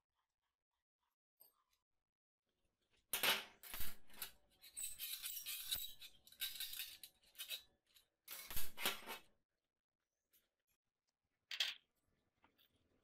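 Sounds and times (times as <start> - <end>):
metal tools clinking on workbench: 3.2 - 9.2.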